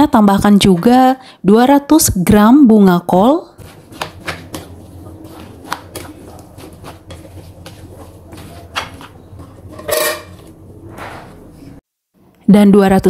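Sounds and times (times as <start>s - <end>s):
spatula stirring wet mix: 3.5s - 10.8s.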